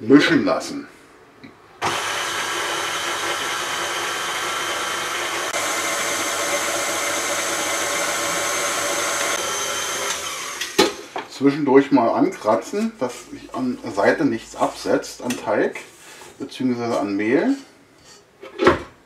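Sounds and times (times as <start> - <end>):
stand mixer running: 1.8 - 11.2.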